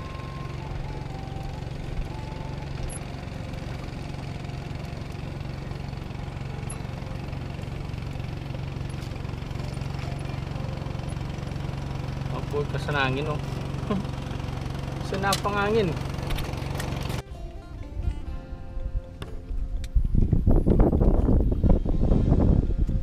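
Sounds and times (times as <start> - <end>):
boat engine humming: 0.0 - 23.0.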